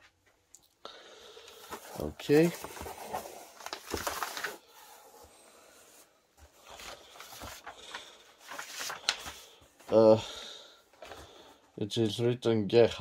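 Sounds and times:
paper rustling and sliding: 1.5s - 10.2s.

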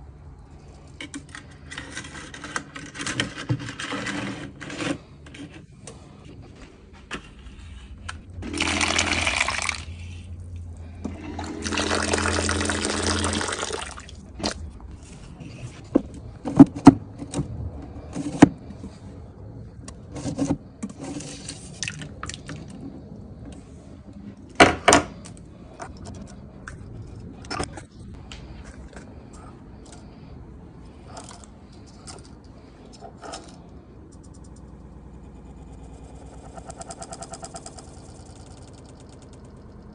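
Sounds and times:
low hum: 5.0s - 39.9s
tap water running into cup: 8.4s - 9.9s, 11.4s - 14.0s.

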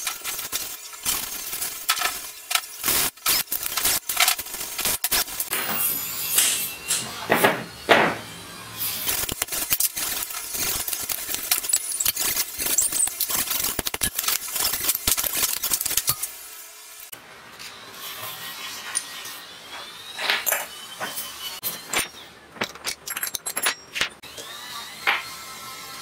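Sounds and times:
metal tools clinking and scraping: 5.5s - 7.4s, 20.2s - 24.2s.

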